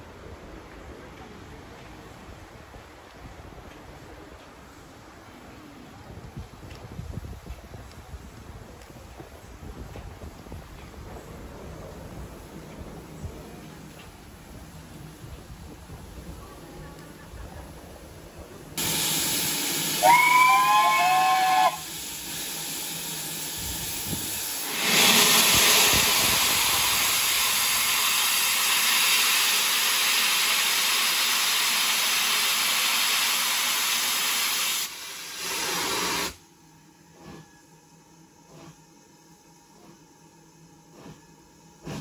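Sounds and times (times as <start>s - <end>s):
steam whistle blast: 18.8s - 22.1s
steam hissing: 18.8s - 42.0s.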